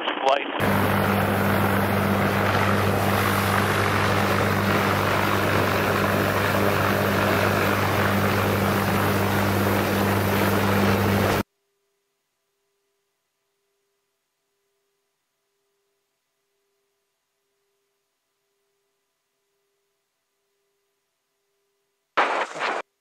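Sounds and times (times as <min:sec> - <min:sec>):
helicopter rotor and turbine noise: 0:00.5 - 0:11.4
low even hum: 0:00.6 - 0:22.8
faint thin tone: 0:11.5 - 0:22.0.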